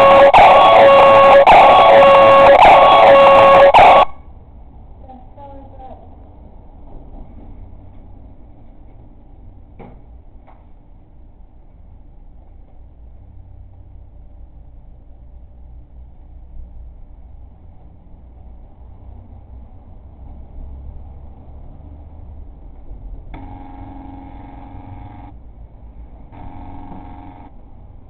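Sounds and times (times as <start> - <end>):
low steady rumble: 4.1 - 28.0
air horn honk over a speaker: 26.4 - 27.5.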